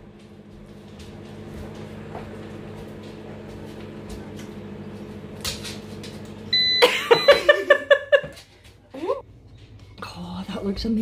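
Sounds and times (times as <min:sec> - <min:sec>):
microwave humming: 0:00.0 - 0:11.0
microwave beep: 0:06.5 - 0:08.2.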